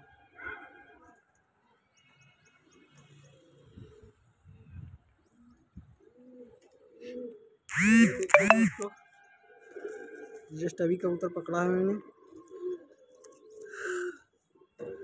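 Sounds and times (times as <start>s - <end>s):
pigeons cooing: 12.2s - 13.8s.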